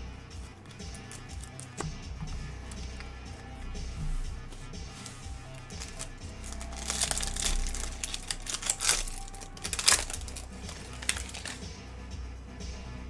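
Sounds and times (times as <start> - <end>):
background music: 0.0 - 13.0
plastic wrapper tearing and crinkling: 0.8 - 1.8, 5.0 - 11.6.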